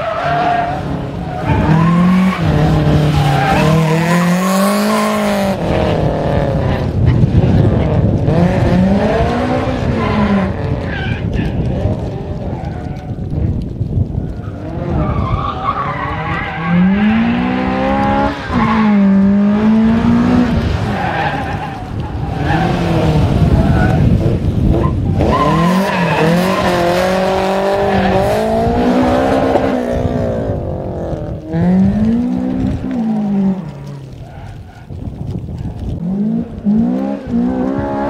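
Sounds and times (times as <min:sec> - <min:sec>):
tyres squealing on tarmac: 0:00.0 - 0:04.3, 0:10.0 - 0:11.6, 0:14.3 - 0:17.6, 0:20.8 - 0:24.1, 0:24.8 - 0:28.5
car engine revving hard: 0:16.6 - 0:20.8.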